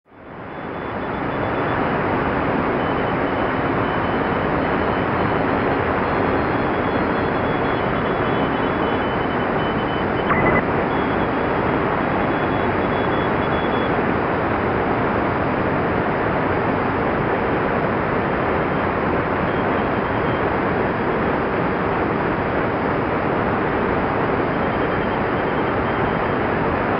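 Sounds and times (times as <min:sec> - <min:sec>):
faint morse code tones: 0:02.8 - 0:14.0, 0:24.4 - 0:26.4
short loud beep: 0:10.2 - 0:10.7.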